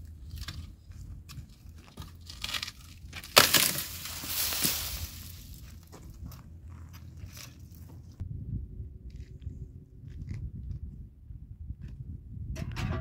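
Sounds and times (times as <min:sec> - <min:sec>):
dry branch snapping and crashing: 0:02.3 - 0:05.6
brush dragged on stony ground: 0:03.7 - 0:05.8.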